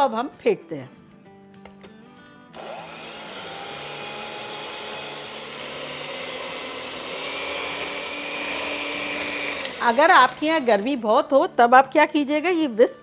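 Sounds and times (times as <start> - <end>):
electric hand mixer whirring: 2.6 - 11.2.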